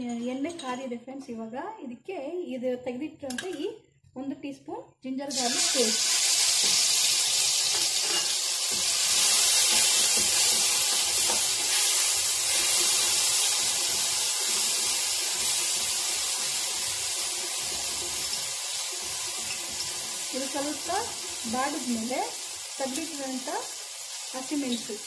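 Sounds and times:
paste sizzling in hot oil: 5.3 - 25.0.

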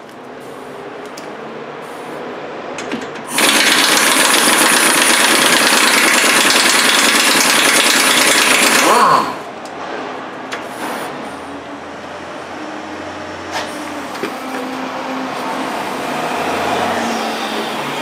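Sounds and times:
pneumatic impact wrench: 2.8 - 9.2.

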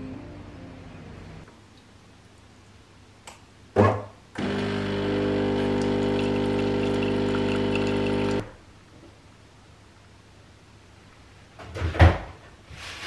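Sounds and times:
coffee machine mechanical burst: 4.4 - 8.4
coffee machine pump buzzing: 4.4 - 8.5.

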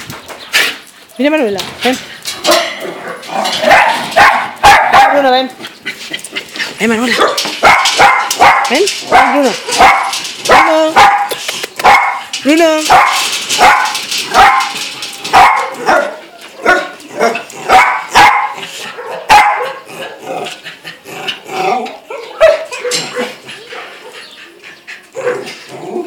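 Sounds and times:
dog barking: 2.5 - 5.3, 7.2 - 12.3, 12.9 - 14.7, 15.3 - 20.1, 22.1 - 24.2.

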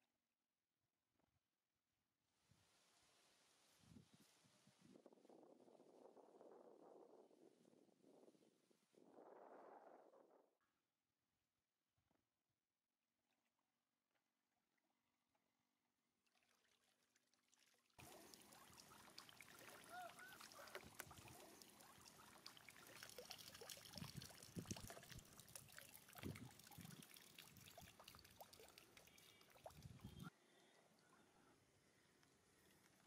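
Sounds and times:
water pouring from plastic bottle: 16.2 - 30.3
small splashes and clicks: 16.2 - 30.8, 32.2 - 33.0.

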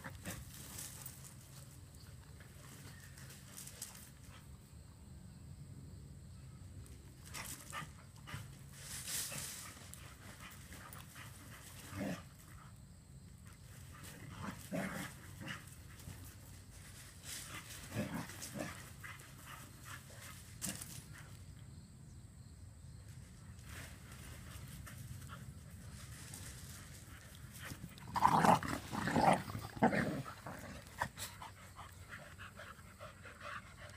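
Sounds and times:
rustle of dogs running: 0.0 - 4.5, 7.2 - 12.6, 13.6 - 21.4, 23.6 - 33.7
dogs panting: 30.2 - 33.9.

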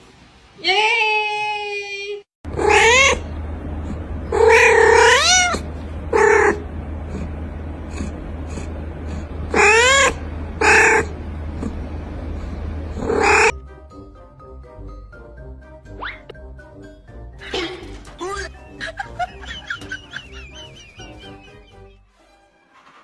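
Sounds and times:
cat meowing: 2.6 - 3.2, 4.3 - 6.6, 13.0 - 13.5.

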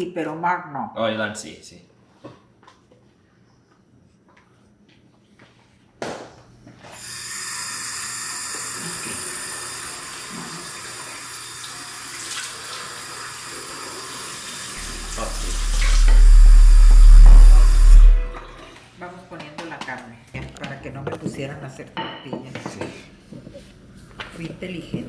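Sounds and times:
loud low hum: 14.8 - 18.7.

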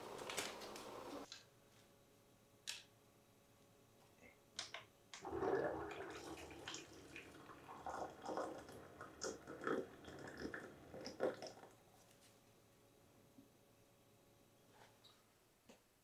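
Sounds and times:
low pump hum: 5.2 - 11.7
water pouring into a glass: 5.2 - 11.7.

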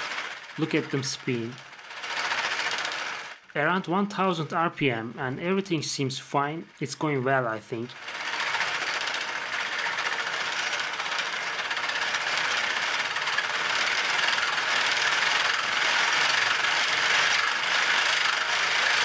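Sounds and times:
plastic gearbox whirring and rattling: 0.0 - 3.5, 7.8 - 19.0.

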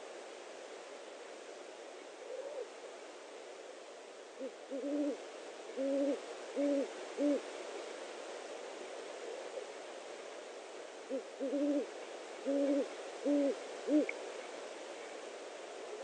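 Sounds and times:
steady camera hiss: 0.0 - 16.0
owl hooting: 2.2 - 2.7, 4.4 - 5.2, 5.8 - 7.4, 11.1 - 14.2.

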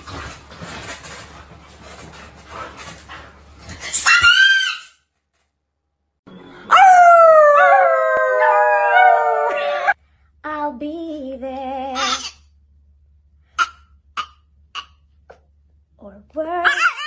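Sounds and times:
dog howling: 6.7 - 10.0.

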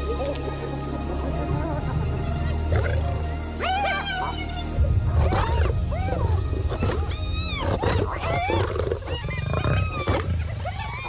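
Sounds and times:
lions growling: 2.7 - 3.1, 5.1 - 11.0
hyenas squealing and whooping: 2.7 - 11.0.

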